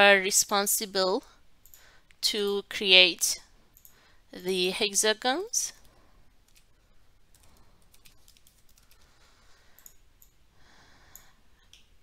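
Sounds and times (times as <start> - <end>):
faint keyboard typing: 1.6 - 2.6, 3.7 - 4.5, 5.7 - 10.4, 11.0 - 12.0.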